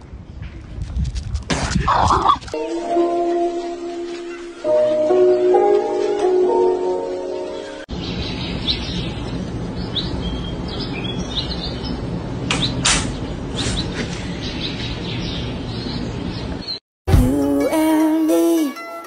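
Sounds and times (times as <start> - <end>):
small birds chirping: 7.3 - 16.8.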